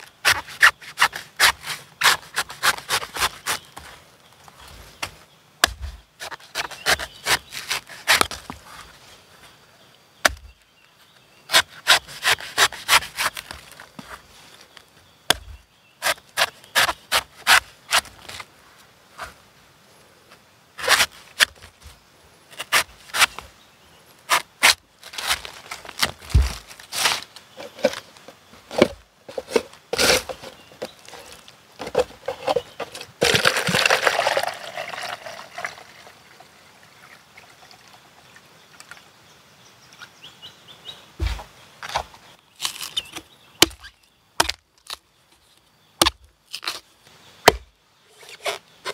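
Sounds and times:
cleaver chopping coconut: 0.2 - 3.7, 5.6 - 8.4, 10.2 - 10.6, 11.5 - 13.6, 15.3 - 18.1, 42.6 - 44.6, 46.0 - 46.8, 47.5 - 47.7
water pouring into plastic cup: 33.2 - 38.0.

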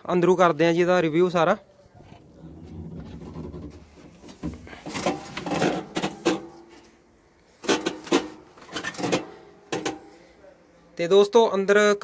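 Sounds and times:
rubbing creaking and knocking: 2.0 - 6.8, 7.6 - 10.0.

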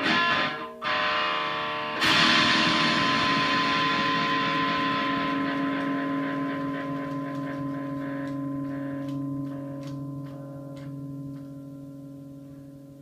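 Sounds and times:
electric guitar chord ringing: 0.0 - 13.0.

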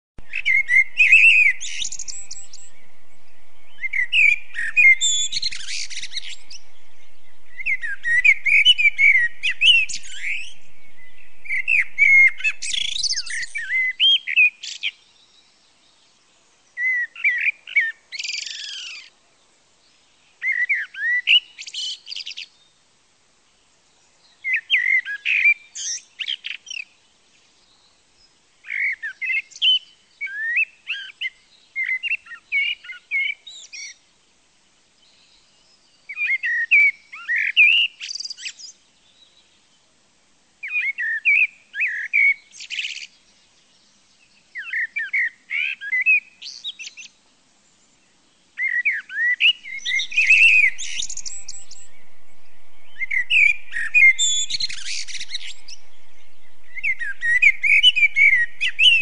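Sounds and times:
steady background noise: 0.2 - 14.0, 49.5 - 59.0
songbird singing: 0.2 - 22.9, 40.6 - 59.0.

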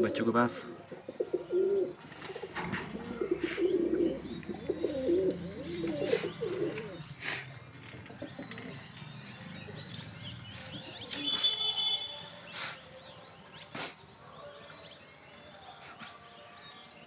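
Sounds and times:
pigeons cooing: 0.0 - 12.9.

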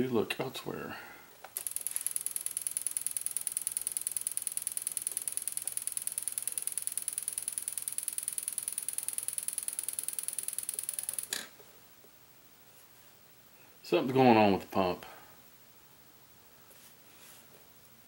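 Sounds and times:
high-pitched electronic tone pulsing: 1.6 - 11.3.

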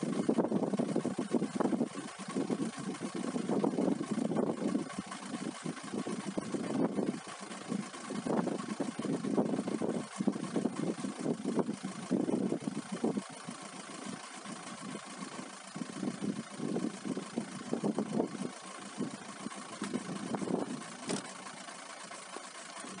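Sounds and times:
strong wind buffeting microphone: 0.2 - 13.4, 15.8 - 19.2, 19.8 - 21.2.

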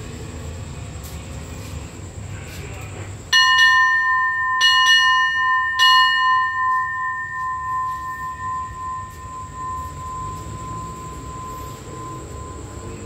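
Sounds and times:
hand bell ringing: 3.4 - 13.0.

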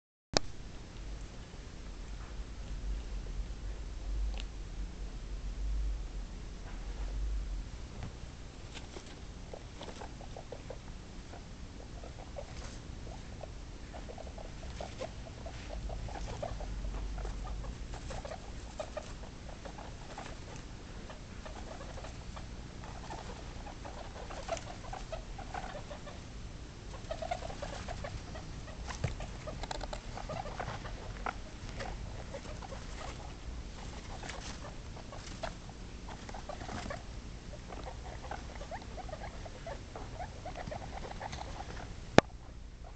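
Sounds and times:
guinea pigs making buzzy calls: 8.7 - 42.9
rustling of wood shavings: 27.1 - 37.0.

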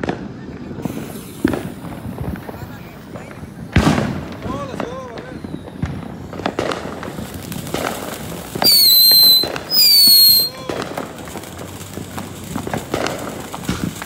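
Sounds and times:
firecracker pops: 0.0 - 14.0
firework fountain spraying sparks: 0.0 - 14.0
firework whistles: 0.6 - 14.0.

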